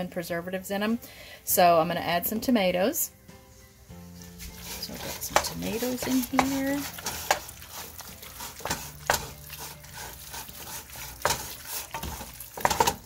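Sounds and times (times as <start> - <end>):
utensil stirring food in pan: 4.1 - 13.0
utensil knocking and scraping pan: 4.3 - 13.0.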